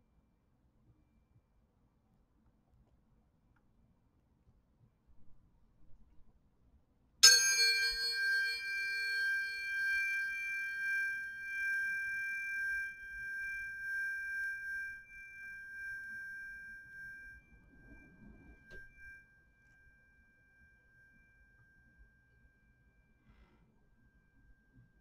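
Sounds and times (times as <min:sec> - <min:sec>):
tuning forks ringing: 0:07.2 - 0:25.0.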